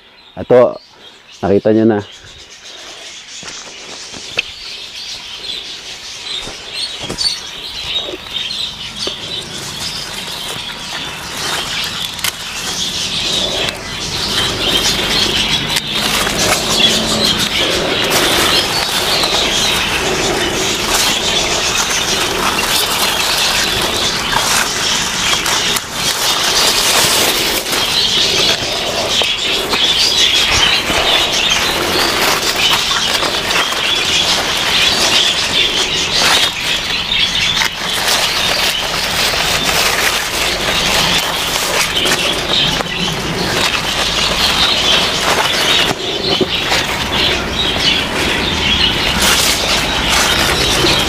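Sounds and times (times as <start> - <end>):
birds chirping: 0.0 - 51.0.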